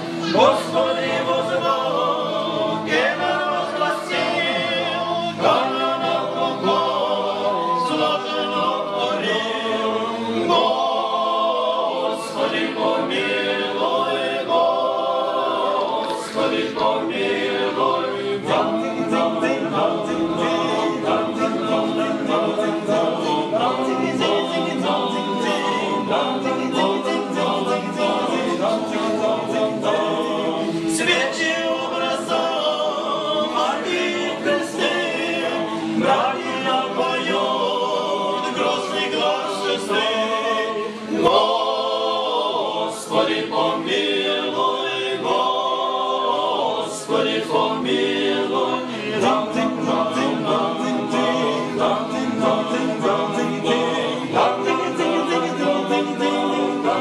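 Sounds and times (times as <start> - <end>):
male choir singing a cappella: 0.0 - 57.0.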